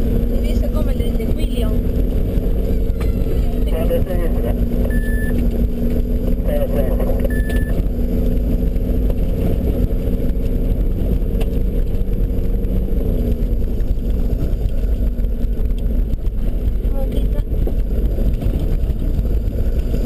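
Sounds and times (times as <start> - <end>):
car engine drone: 0.0 - 20.0.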